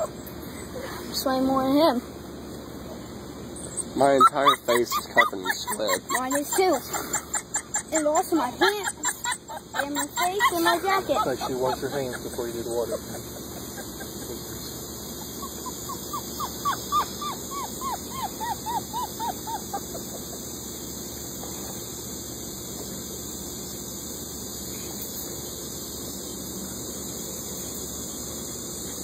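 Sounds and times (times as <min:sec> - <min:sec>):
steady hiss: 0:00.0 - 0:29.0
animal squeaky calls: 0:03.5 - 0:12.3, 0:15.1 - 0:20.1.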